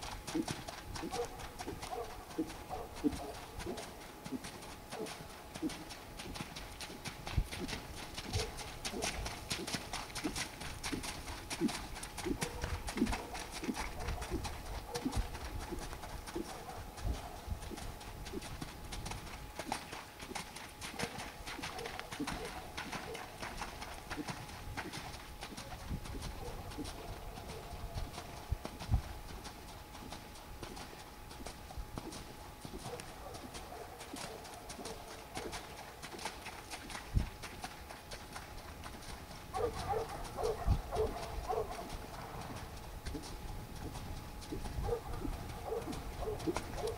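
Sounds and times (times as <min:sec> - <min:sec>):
horse hooves on wet sand: 0:00.0 - 0:46.9.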